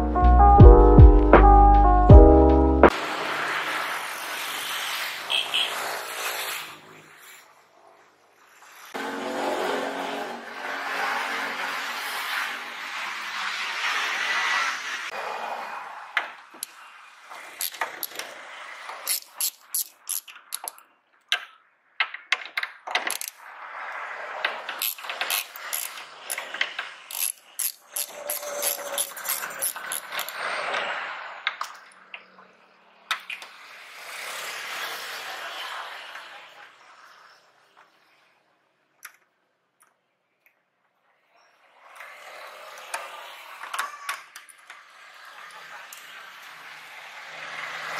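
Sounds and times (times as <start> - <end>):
metallic clicks and ratcheting: 19.0 - 21.5, 22.4 - 23.4, 24.8 - 30.4
electric ratchet wrench whirring: 19.1 - 20.7, 24.8 - 26.4, 27.1 - 30.3.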